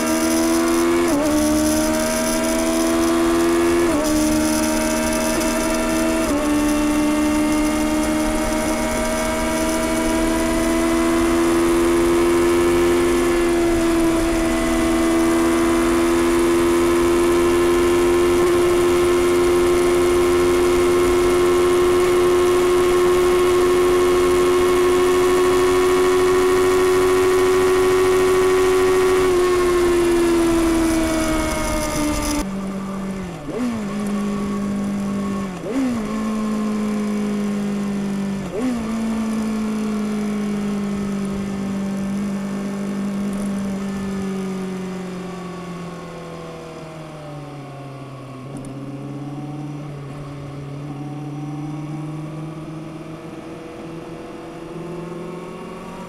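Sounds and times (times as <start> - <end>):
motorcycle engine cruising: 0.0 - 56.0
wind noise: 13.1 - 35.8.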